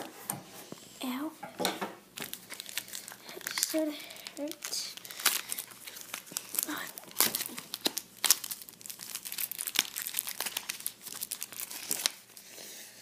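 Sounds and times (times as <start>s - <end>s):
plastic wrapper crinkling: 2.2s - 12.5s.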